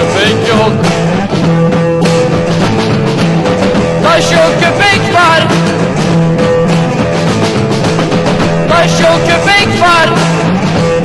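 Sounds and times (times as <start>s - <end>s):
rock band playing loudly: 0.0s - 11.0s.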